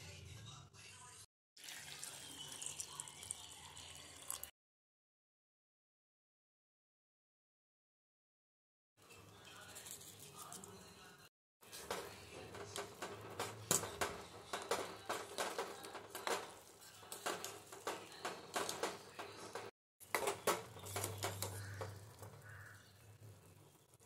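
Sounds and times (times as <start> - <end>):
kitchen utensils clicking and knocking: 11.6 - 24.0.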